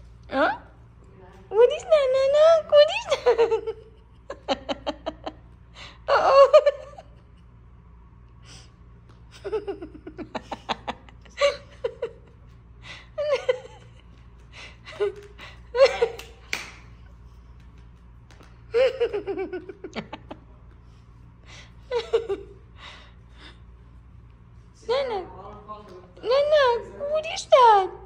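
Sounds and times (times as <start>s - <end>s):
person laughing and giggling: 2.9s - 7.6s, 9.3s - 16.6s, 18.7s - 23.6s.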